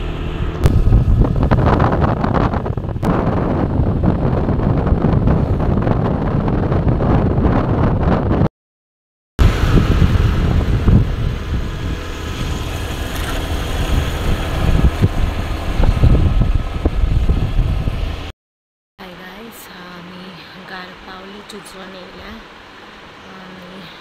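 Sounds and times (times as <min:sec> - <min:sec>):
vehicle rumble: 0:00.0 - 0:08.5, 0:09.4 - 0:18.3
wind buffeting microphone: 0:00.0 - 0:08.5, 0:09.4 - 0:18.3
low thumps: 0:00.4 - 0:08.5.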